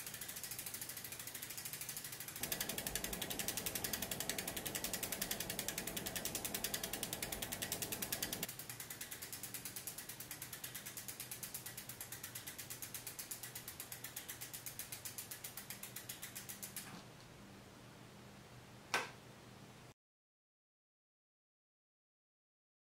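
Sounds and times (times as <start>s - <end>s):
bike hub ratchet clicking: 0.0s - 16.9s.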